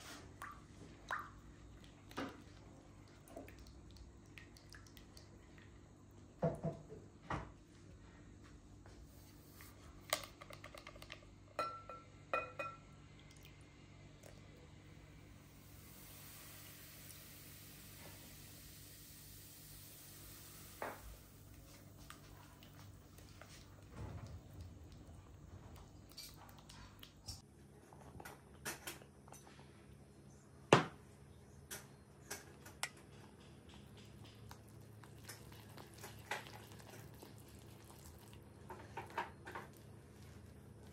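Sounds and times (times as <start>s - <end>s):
metal spoon clinking glass bowl: 11.6s - 12.8s.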